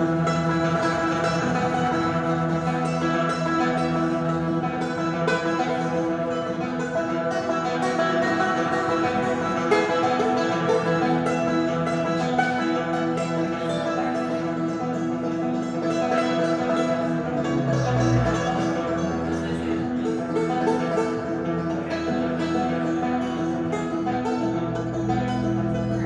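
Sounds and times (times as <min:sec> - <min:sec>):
banjo picking: 0:00.0 - 0:26.0
bowed double bass: 0:00.0 - 0:26.0.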